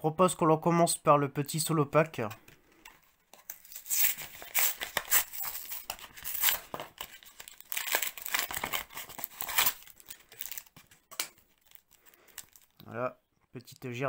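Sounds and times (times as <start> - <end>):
plastic and foil crinkling: 3.4 - 12.8
cardboard tearing: 3.6 - 10.8.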